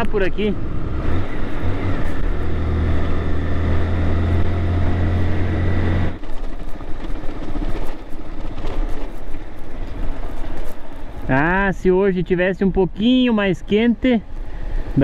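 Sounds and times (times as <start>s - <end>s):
motorcycle engine running: 0.0s - 11.6s
tyre and wind noise: 0.6s - 13.4s.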